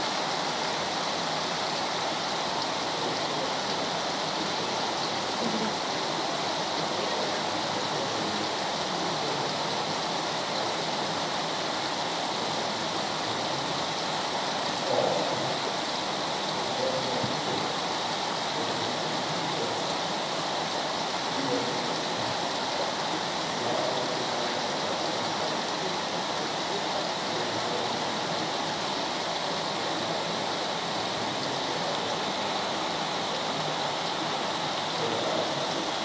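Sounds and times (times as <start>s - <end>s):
flowing water rushing: 0.0s - 36.0s.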